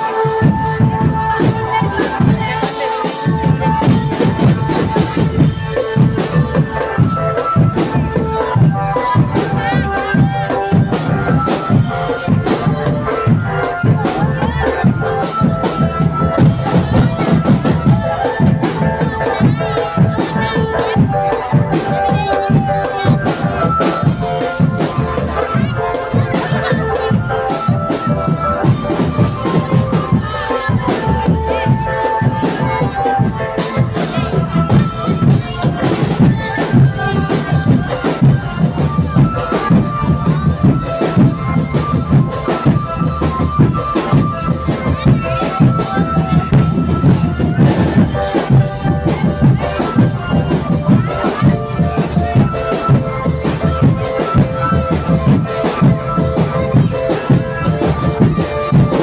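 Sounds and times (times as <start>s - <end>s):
marching drum band playing: 0.0s - 59.0s.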